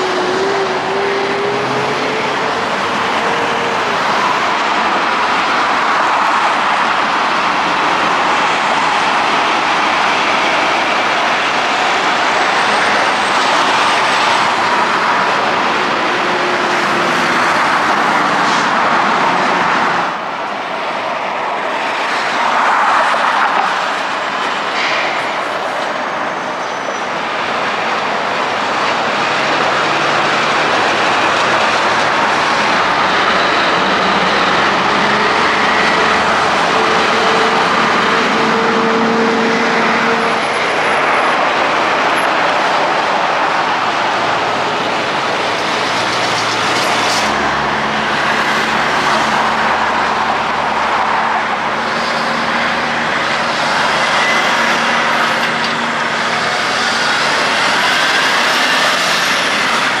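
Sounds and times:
truck engine hum: 0:00.0 - 0:05.7
trucks passing on highway: 0:00.0 - 1:00.0.

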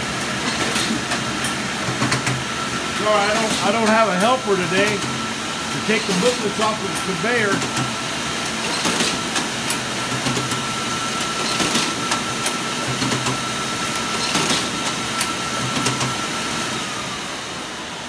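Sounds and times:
machine motor whine: 0:00.0 - 0:18.0
paper handling clicks and clacks: 0:08.6 - 0:10.6, 0:14.2 - 0:14.9.

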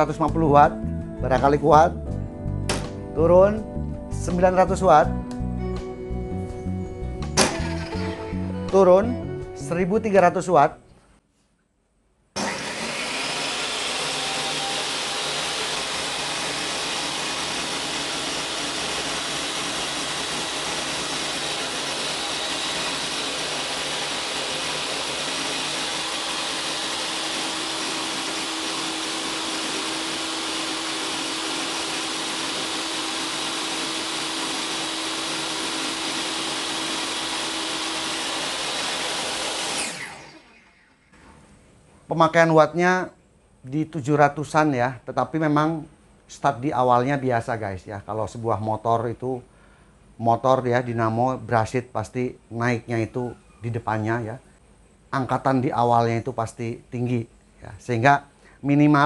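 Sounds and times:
table saw running: 0:07.4 - 0:08.5, 0:12.4 - 0:41.4.

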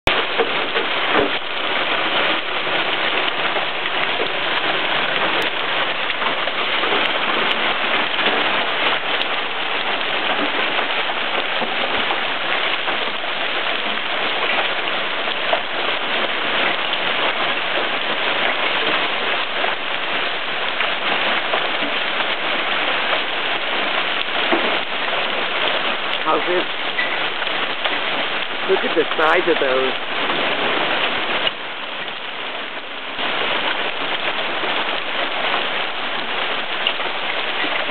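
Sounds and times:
heavy rain and hail: 0:00.0 - 0:37.9.

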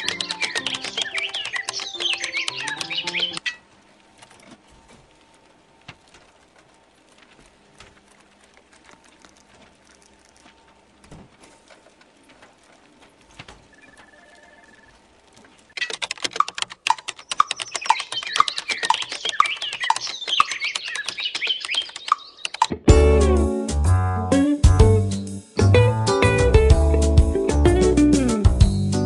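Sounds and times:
computer keyboard typing: 0:00.0 - 0:03.5, 0:15.7 - 0:22.7
high chirps: 0:00.0 - 0:03.6, 0:15.7 - 0:22.7.

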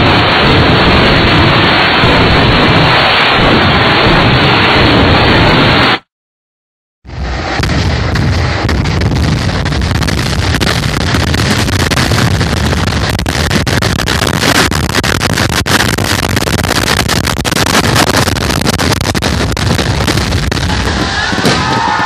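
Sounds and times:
low rumble: 0:00.0 - 0:06.0, 0:07.0 - 0:22.0
fireworks crackling and banging: 0:00.0 - 0:06.1, 0:07.1 - 0:22.0.

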